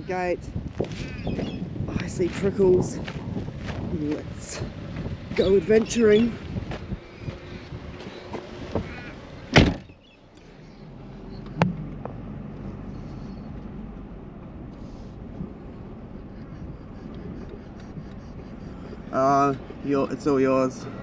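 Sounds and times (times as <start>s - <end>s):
wind noise: 0.0s - 9.9s, 14.5s - 20.2s
car running low hum: 0.0s - 21.0s
car door slamming: 8.3s - 10.0s.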